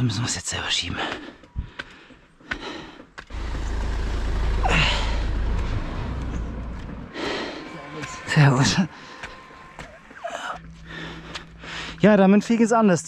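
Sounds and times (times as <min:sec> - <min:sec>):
low rumble: 0:03.3 - 0:07.6.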